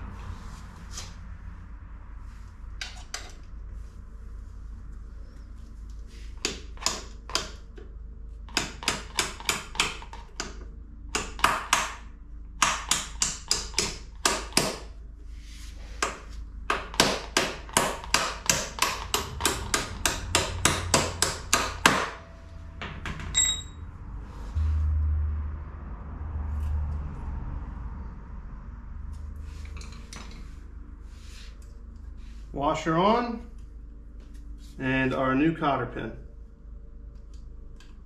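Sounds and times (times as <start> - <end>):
hammer striking metal pin: 12.6 - 14.8, 16.0 - 22.3.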